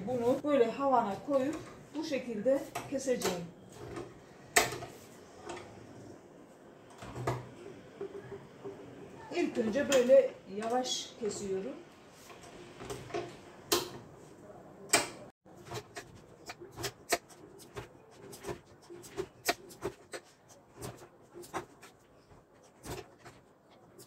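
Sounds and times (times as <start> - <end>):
knife slicing dough: 15.0 - 24.0.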